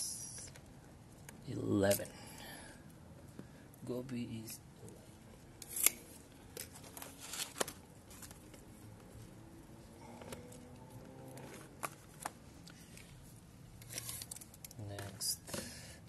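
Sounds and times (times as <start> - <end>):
notebook pages rustling: 6.6 - 9.2.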